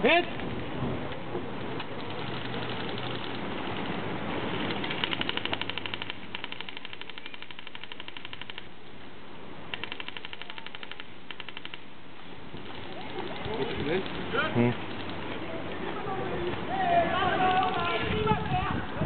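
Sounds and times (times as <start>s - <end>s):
airsoft gun firing rapid bursts: 2.0s - 3.4s, 4.6s - 8.7s, 9.7s - 11.8s.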